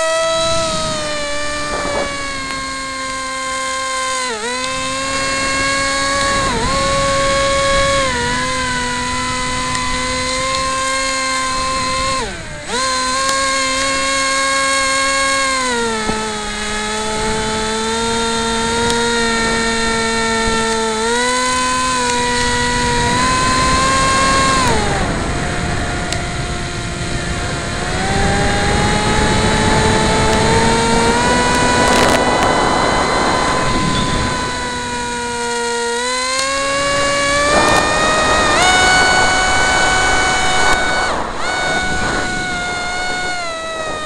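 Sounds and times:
model plane motor whining: 0:00.0 - 0:44.0
wind rushing: 0:29.3 - 0:35.0, 0:36.8 - 0:44.0.

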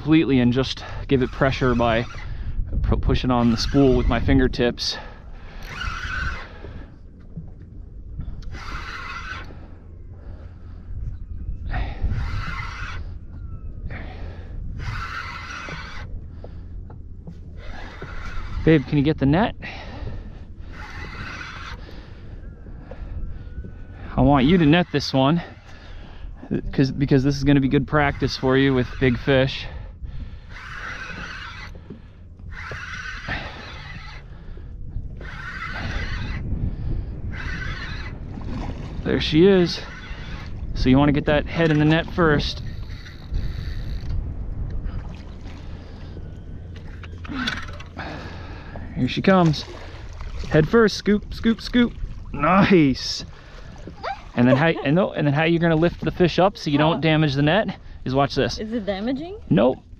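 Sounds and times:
low wind rumble: 0:00.0 - 0:59.9
fishing reel whirring: 0:00.8 - 0:02.5, 0:03.4 - 0:06.8, 0:08.4 - 0:10.6, 0:11.7 - 0:16.6, 0:17.2 - 0:26.2, 0:26.8 - 0:44.4, 0:45.7 - 0:48.8
fishing reel spinning: 0:05.6 - 0:06.5, 0:08.4 - 0:09.7, 0:12.0 - 0:13.2, 0:14.8 - 0:16.1, 0:17.6 - 0:19.2, 0:20.7 - 0:21.9, 0:30.4 - 0:34.5, 0:35.1 - 0:36.5, 0:37.3 - 0:38.2, 0:39.2 - 0:40.6, 0:41.8 - 0:44.3.

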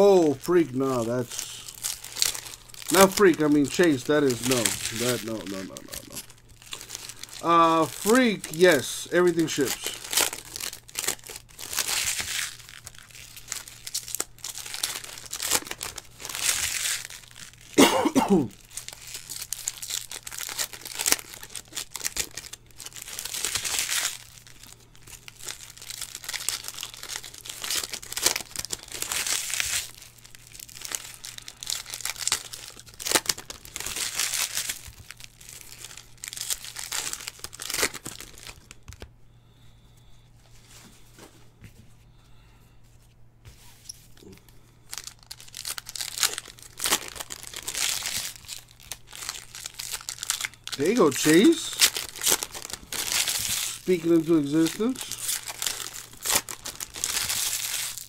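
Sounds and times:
card pack wrappers tearing: 0:00.0 - 0:39.1, 0:44.2 - 0:58.0
cough or grunt: 0:17.8 - 0:18.6.

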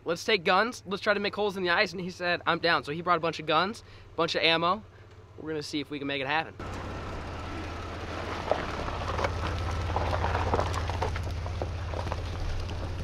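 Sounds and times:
low engine rumble: 0:00.0 - 0:13.0
ice crackling under tyres: 0:06.6 - 0:13.0.

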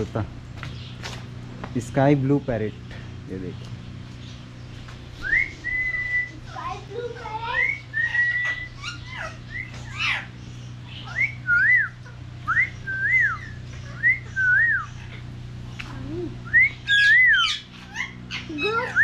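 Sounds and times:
steady low hum: 0:00.0 - 0:19.0
parrots whistling: 0:05.2 - 0:15.3, 0:16.3 - 0:19.0.

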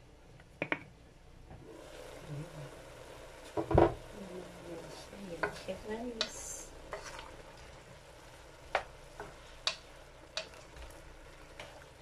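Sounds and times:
mushrooms and onions sizzling: 0:01.6 - 0:12.0
wooden spoon knocking on pan: 0:03.6 - 0:04.0, 0:05.3 - 0:07.1.

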